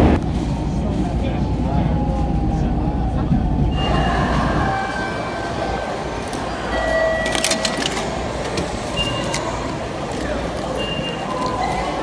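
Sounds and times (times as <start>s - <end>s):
station concourse hubbub: 0.0s - 12.0s
ticket gate clicking: 6.8s - 11.6s.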